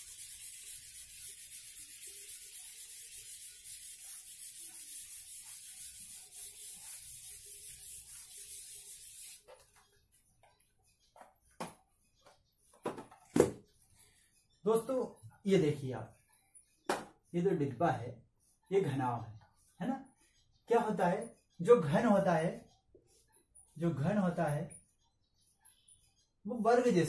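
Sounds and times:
eraser rubbing on whiteboard: 0:00.0 - 0:09.6.

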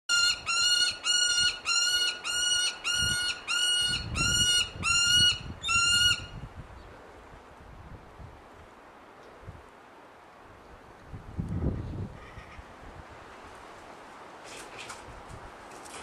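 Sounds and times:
bird calling: 0:00.1 - 0:06.3.

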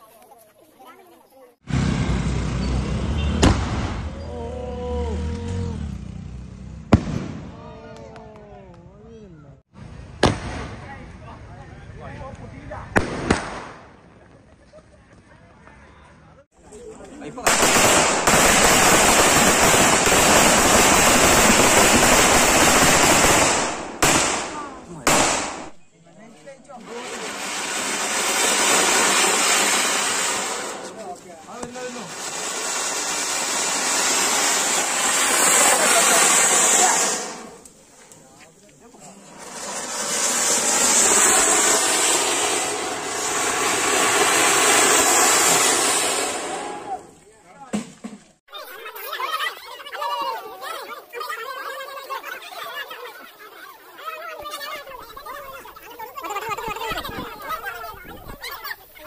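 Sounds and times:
firework crackling and hissing: 0:17.3 - 0:25.8, 0:26.8 - 0:47.2, 0:50.3 - 0:59.0.

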